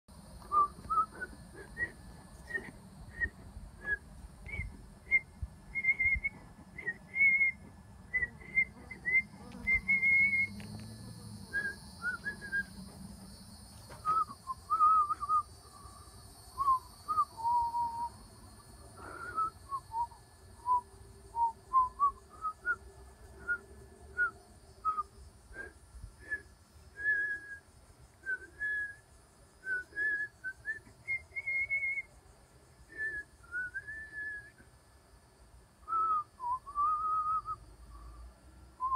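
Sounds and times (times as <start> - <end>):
person whistling a tune: 0.4 - 7.6, 8.2 - 10.6, 11.5 - 12.7, 14.0 - 15.5, 16.6 - 18.1, 27.0 - 27.6, 28.2 - 29.0, 29.6 - 32.1, 32.9 - 34.6, 35.9 - 37.6.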